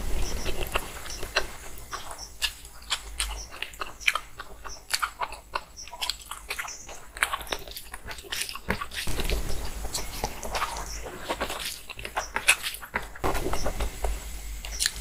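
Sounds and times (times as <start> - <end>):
wet chewing and lip-smacking: 0.2 - 13.8, 14.6 - 15.0.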